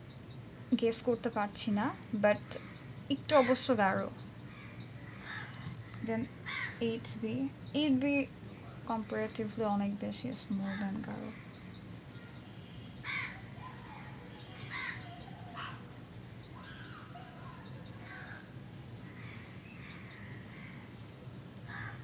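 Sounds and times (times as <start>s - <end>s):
harsh crow-like bird calls: 4.5s - 7.0s, 10.6s - 20.9s, 21.6s - 22.0s
pencil rubbing on paper: 5.9s - 9.5s, 11.0s - 21.2s.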